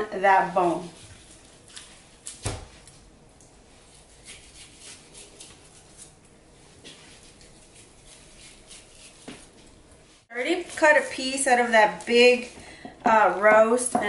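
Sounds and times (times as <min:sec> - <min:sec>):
knife cutting meat on cutting board: 0:06.8 - 0:09.6.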